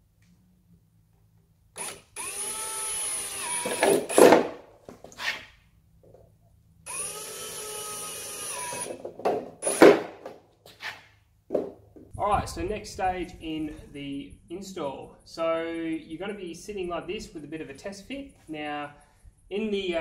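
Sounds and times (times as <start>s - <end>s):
cordless drill motor whine: 1.8s - 4.2s, 6.8s - 9.0s.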